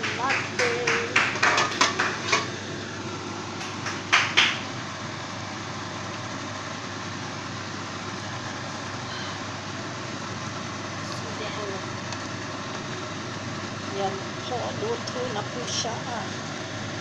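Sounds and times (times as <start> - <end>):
rushing kitchen noise: 0.0 - 17.0.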